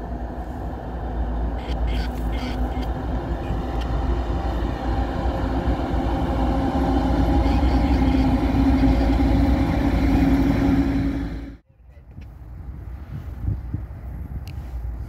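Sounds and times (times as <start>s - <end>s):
locomotive engines rumbling: 0.0s - 11.6s.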